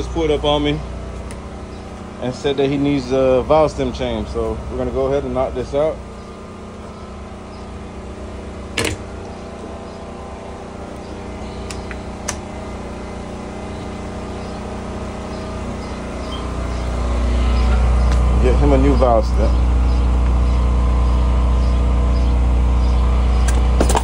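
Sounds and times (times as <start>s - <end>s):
car engine running: 0.0s - 24.0s.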